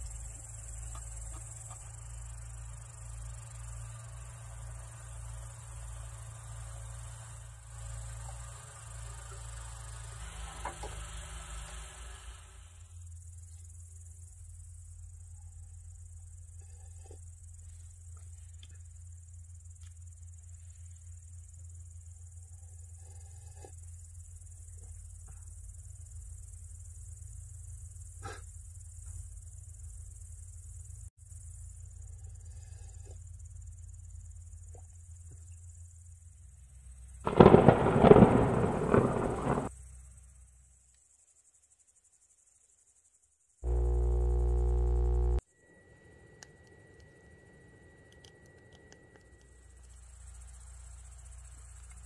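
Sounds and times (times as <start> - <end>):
high insect chirring: 0.0 - 10.2, 36.8 - 45.5, 46.4 - 52.0
faint ticks: 18.1 - 19.0, 40.8 - 41.2, 48.1 - 52.0
low steady hum: 43.6 - 52.0.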